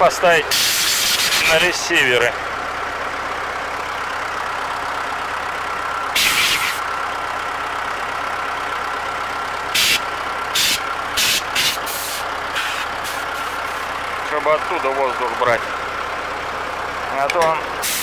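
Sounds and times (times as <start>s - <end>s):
truck engine idling: 0.0s - 18.0s
compressed air blow gun bursts: 6.2s - 6.8s, 9.8s - 10.0s, 10.6s - 13.8s.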